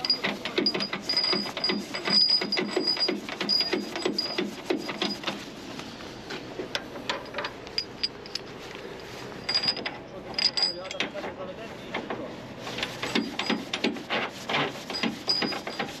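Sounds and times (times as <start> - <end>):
metal clicks and knocks: 0.0 - 5.4, 6.6 - 8.5, 9.4 - 12.2, 14.9 - 16.0.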